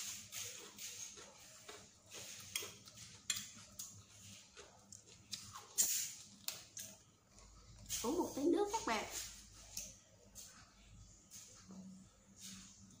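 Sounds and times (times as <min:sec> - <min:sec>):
chewing food: 0:00.0 - 0:08.1.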